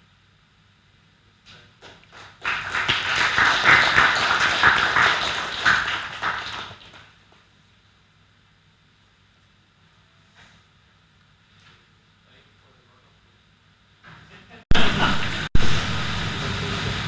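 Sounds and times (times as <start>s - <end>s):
audience applauding: 1.9s - 7.1s.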